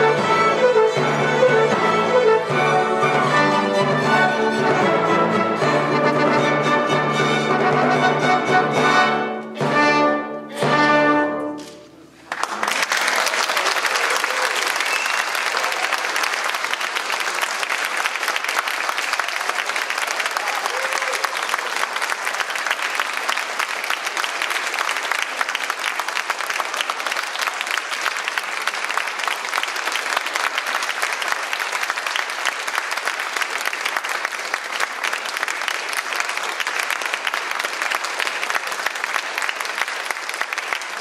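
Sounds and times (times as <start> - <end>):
audience applauding: 12.1 - 41.0.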